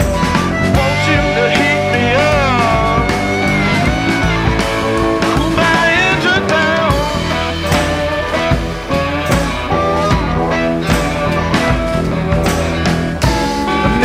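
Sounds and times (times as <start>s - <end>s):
electric guitar bending notes: 0.0s - 14.0s
rock music: 0.0s - 14.0s.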